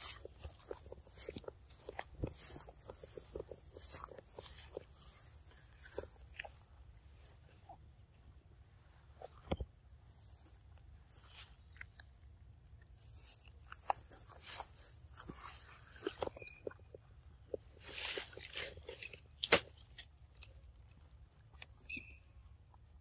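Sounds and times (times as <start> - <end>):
monkey handling and biting fruit: 11.6 - 21.8.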